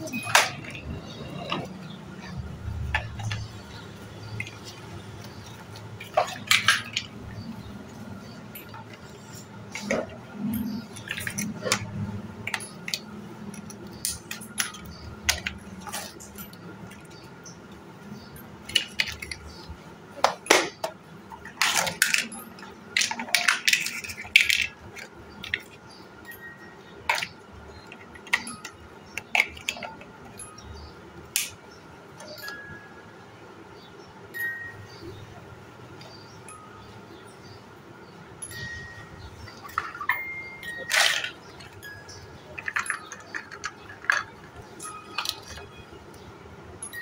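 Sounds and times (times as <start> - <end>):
plastic building blocks clacking: 0.0 - 17.2, 18.6 - 19.6, 20.2 - 25.9, 27.0 - 30.5, 39.4 - 46.2.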